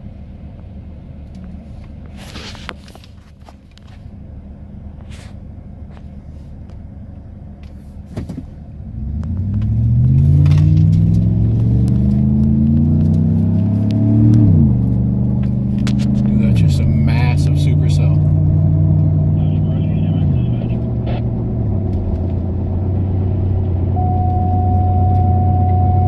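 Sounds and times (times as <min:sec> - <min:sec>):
car engine accelerating: 0:08.4 - 0:26.0.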